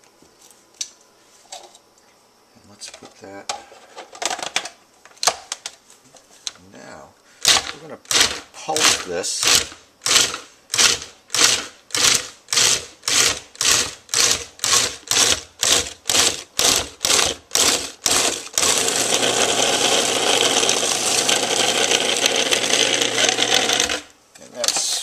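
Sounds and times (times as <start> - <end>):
food processor chopping: 7.4 - 24.1.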